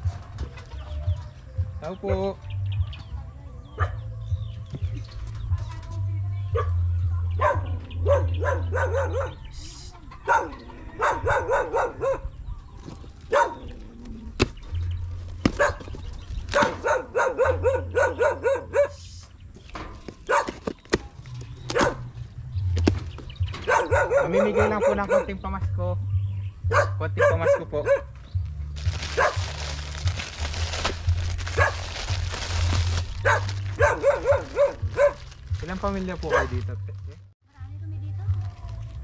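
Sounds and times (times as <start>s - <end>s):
dog barking: 3.8s - 4.1s, 6.5s - 9.5s, 10.2s - 12.4s, 13.3s - 13.7s, 15.6s - 15.9s, 16.5s - 19.0s, 20.3s - 20.6s, 21.7s - 22.1s, 23.6s - 25.4s, 26.7s - 28.2s, 29.2s - 29.4s, 31.5s - 31.9s, 33.2s - 35.4s, 36.2s - 36.7s
low rumble: 28.4s - 36.0s.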